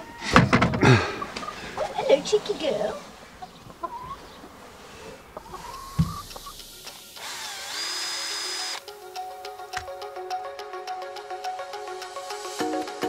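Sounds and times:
hen calling: 0.0 - 7.1
thump: 0.3 - 1.0, 6.0 - 6.2
cordless drill whining: 7.2 - 8.8.

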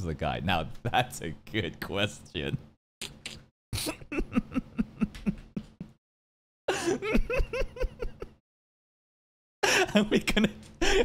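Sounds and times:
man laughing hard: 3.8 - 6.0, 6.7 - 8.4, 9.6 - 11.0.

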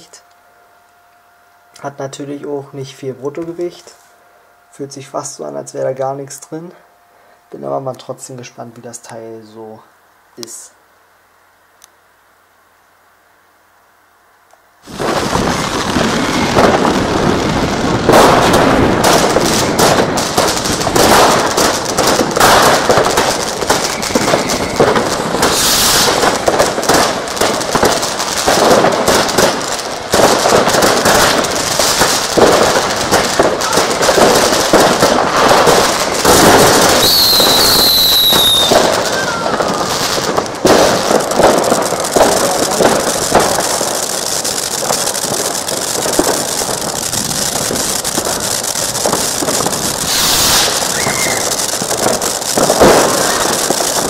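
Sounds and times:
fireworks crackling and hissing: 0.0 - 54.0
falling whistle: 23.8 - 25.0, 36.9 - 40.1, 50.1 - 51.6.

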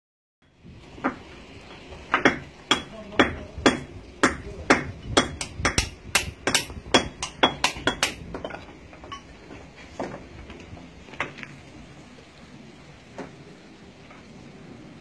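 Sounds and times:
hammers striking stone: 1.0 - 1.3, 2.1 - 9.3.

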